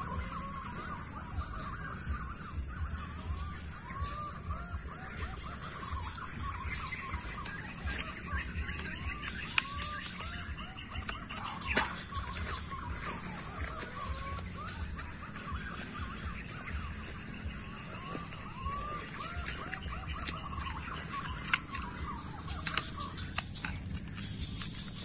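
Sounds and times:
bird chirps: 0.0s - 25.0s
high-pitched insect drone: 0.0s - 25.0s
sharp clicks: 6.0s - 12.4s, 19.1s - 25.0s.

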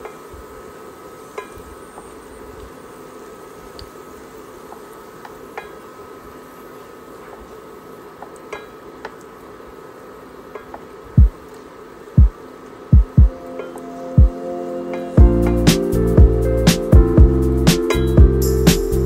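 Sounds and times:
heavy deep thumps: 13.0s - 13.3s.

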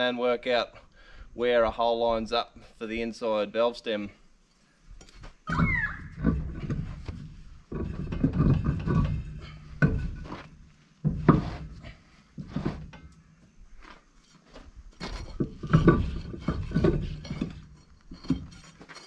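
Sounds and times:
steel rim scraping and clanking: 6.1s - 13.2s, 14.2s - 19.0s.

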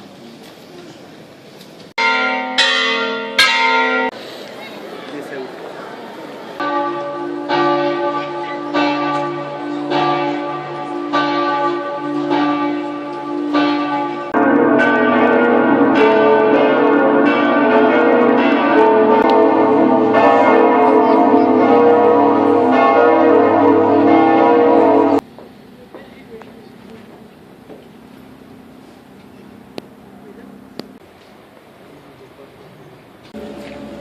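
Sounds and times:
church bells ringing: 2.0s - 4.2s, 6.6s - 25.2s, 27.5s - 31.0s.

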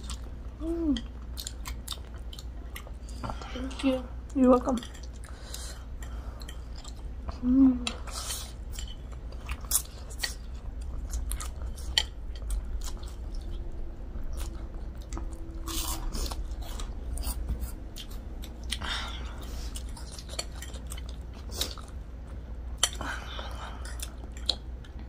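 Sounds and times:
chewing and crunching bites: 7.9s - 25.0s.

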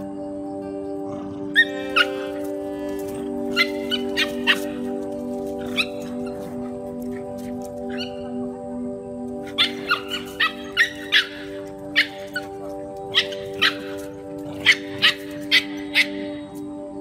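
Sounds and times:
background music with held notes: 0.0s - 17.0s
small dogs yapping: 1.5s - 8.4s, 9.4s - 16.4s.

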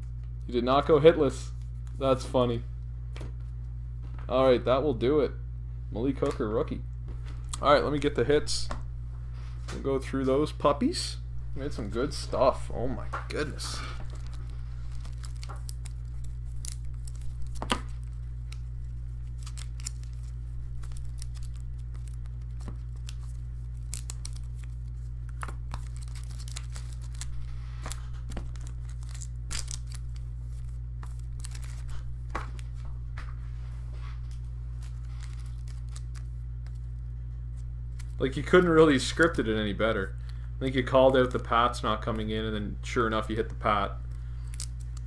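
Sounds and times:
low electrical hum: 0.0s - 45.0s
cards and plastic holders handled: 13.0s - 33.3s.

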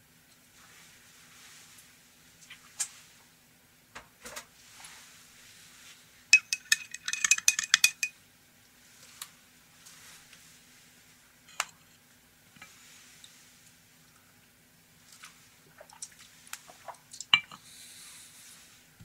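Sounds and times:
spoon clinking against glass: 6.4s - 8.1s, 17.4s - 17.6s.

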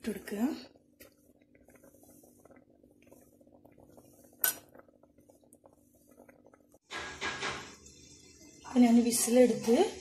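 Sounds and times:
faint crackling of cooking food: 0.0s - 10.0s
metallic clink on pot: 4.4s - 4.7s.

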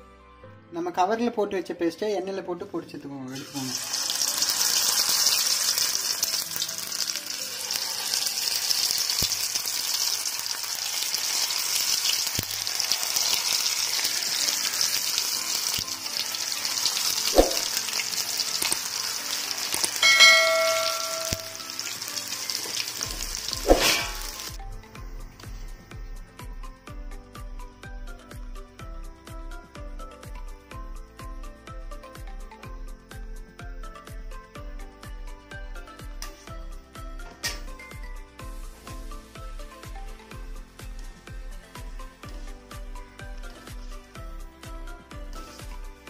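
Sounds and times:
deep-frying sizzle in oil: 3.3s - 24.6s, 36.2s - 43.8s
background music with a beat: 17.0s - 17.9s, 20.0s - 21.8s, 23.0s - 46.0s
short ringing ding: 20.0s - 21.7s.

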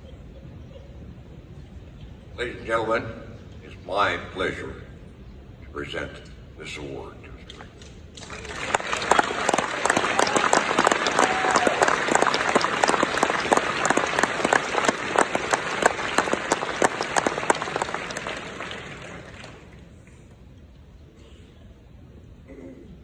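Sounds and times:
audience applauding: 8.2s - 20.2s.

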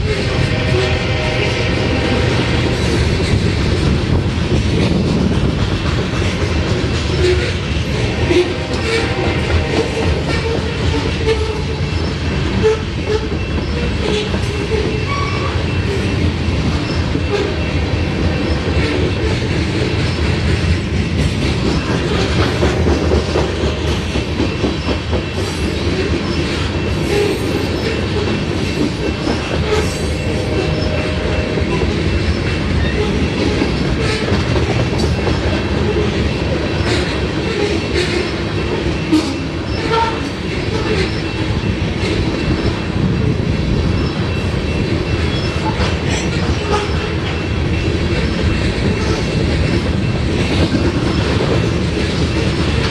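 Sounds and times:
train wheels rumbling on rails: 0.0s - 52.9s
wheels clacking on rails: 0.0s - 52.9s
crossing bell ringing: 26.7s - 34.1s.

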